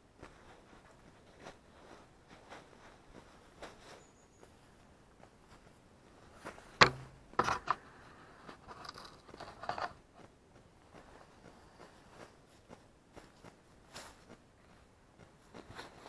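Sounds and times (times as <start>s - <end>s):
soft scraping and rustling: 0.0s - 16.0s
camera handling noise: 6.8s - 7.8s
clicks and knocks: 6.8s - 7.8s.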